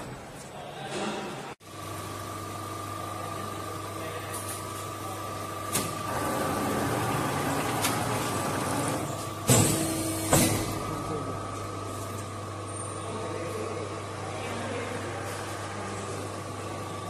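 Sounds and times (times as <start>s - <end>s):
embossing press humming: 1.3s - 14.4s.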